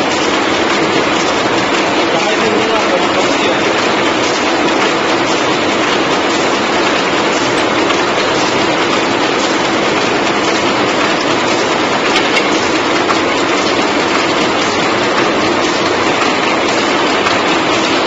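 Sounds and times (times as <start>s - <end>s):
wrapping machine clattering: 0.0s - 18.0s.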